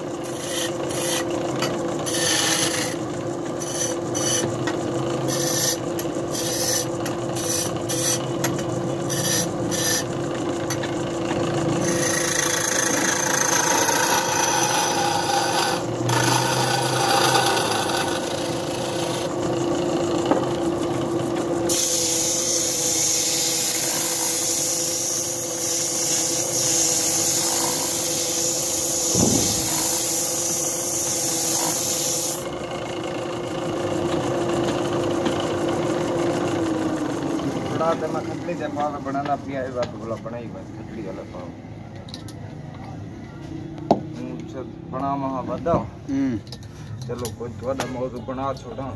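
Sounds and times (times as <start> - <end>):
chisel scraping spinning wood: 0.0 - 22.9, 23.5 - 32.6
wood lathe humming: 0.0 - 39.0.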